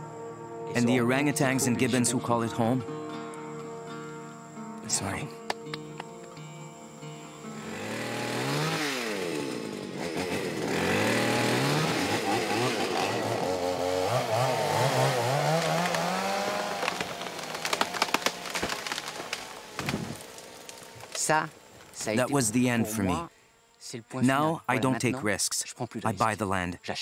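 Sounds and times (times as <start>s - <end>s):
chainsaw cutting tree trunk: 7.5s - 22.0s
wood cracking: 10.1s - 22.2s.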